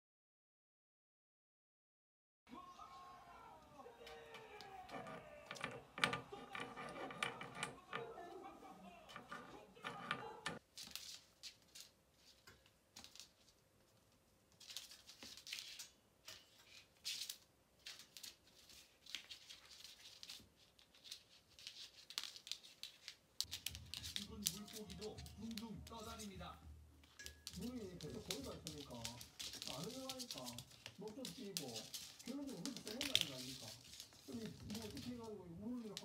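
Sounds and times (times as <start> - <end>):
kitten claws on wooden floor: 4.9 - 8.1, 14.6 - 26.4, 27.0 - 36.0.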